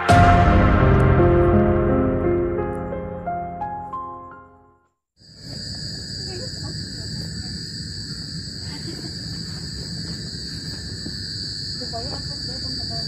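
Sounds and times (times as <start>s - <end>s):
crickets and insects trilling: 5.2s - 13.0s.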